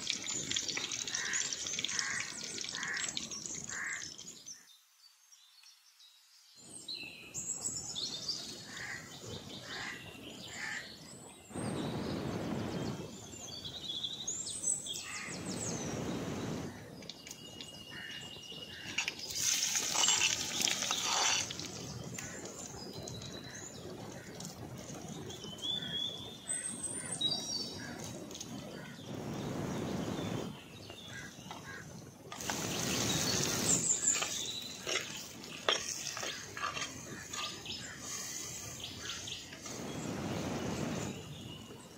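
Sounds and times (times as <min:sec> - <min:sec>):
hot oil sizzling: 0:00.0 - 0:04.4, 0:18.7 - 0:25.9, 0:31.6 - 0:41.2
birds chirping: 0:00.0 - 0:04.8, 0:06.7 - 0:41.9.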